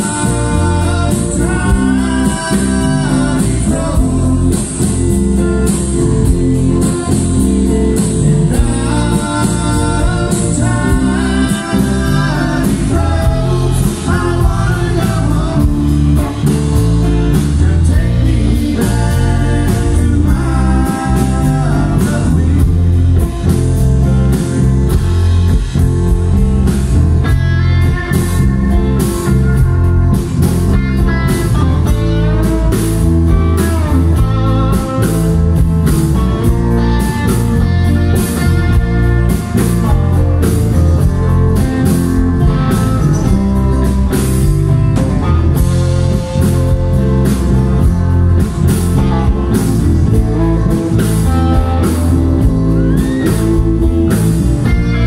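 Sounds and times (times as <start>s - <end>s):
person singing: 0.0s - 23.6s, 48.7s - 55.0s
live rock band playing: 0.0s - 55.0s.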